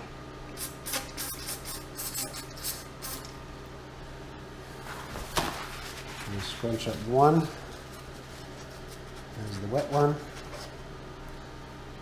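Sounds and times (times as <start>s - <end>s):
aerosol spray can hissing: 0.6s - 3.3s.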